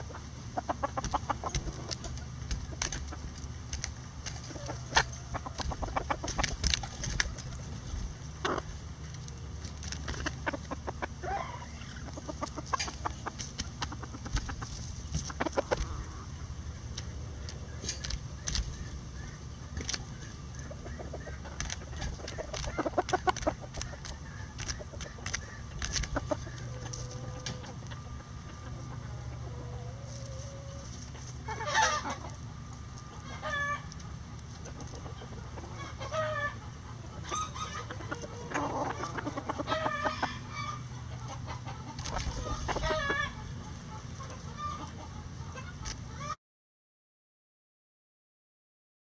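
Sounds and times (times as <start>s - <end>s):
chickens clucking: 0.0s - 46.4s
beaks pecking: 0.1s - 11.1s, 16.9s - 28.0s.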